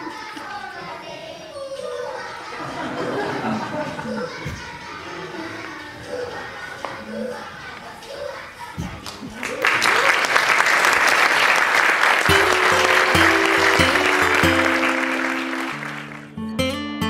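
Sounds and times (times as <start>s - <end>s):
audience applause: 9.1s - 16.4s
music with held notes: 12.3s - 17.0s.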